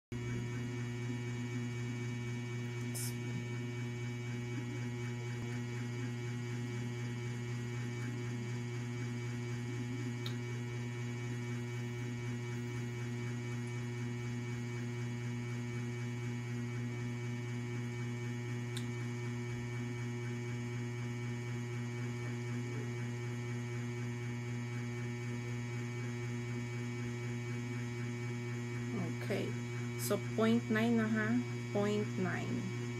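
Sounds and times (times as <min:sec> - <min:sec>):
low electrical hum: 0:00.2 - 0:32.9
faint small clicks: 0:18.7 - 0:18.9.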